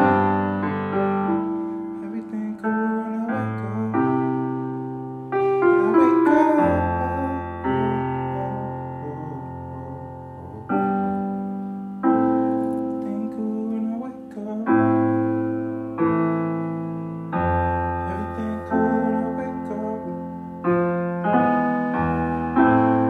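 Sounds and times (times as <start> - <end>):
solo piano chords: 0.0 - 23.0.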